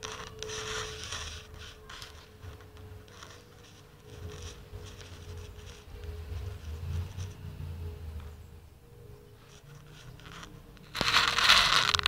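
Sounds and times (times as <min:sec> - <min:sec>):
jet aircraft rumble overhead: 0:00.0 - 0:12.0
faint steady whistle: 0:00.1 - 0:03.4.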